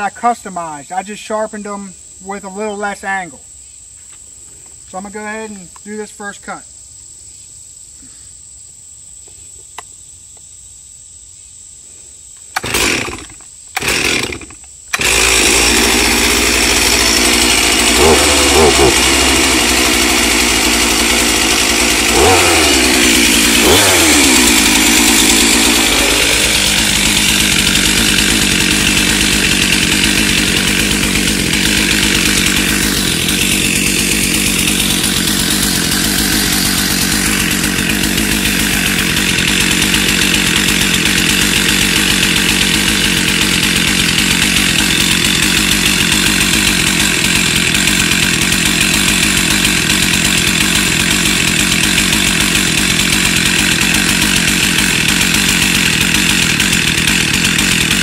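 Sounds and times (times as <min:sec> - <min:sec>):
chainsaw pull-starting: 0:12.4 - 0:58.0
chainsaw revving and cutting log: 0:12.6 - 0:58.0.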